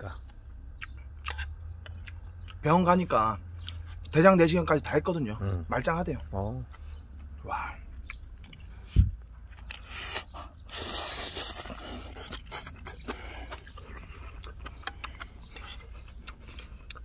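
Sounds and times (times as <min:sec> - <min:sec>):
man chewing food: 0:00.2 - 0:02.6, 0:03.4 - 0:04.2, 0:06.6 - 0:17.0.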